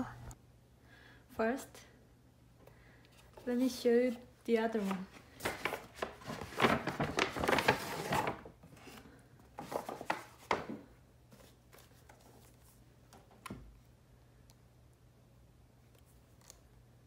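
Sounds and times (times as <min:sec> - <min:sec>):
paper bag rustling: 0:04.7 - 0:10.6.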